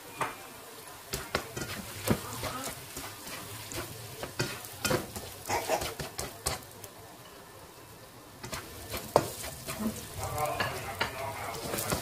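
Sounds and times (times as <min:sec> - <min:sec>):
spatula scraping and knocking wok: 0:01.1 - 0:06.8, 0:08.4 - 0:12.0.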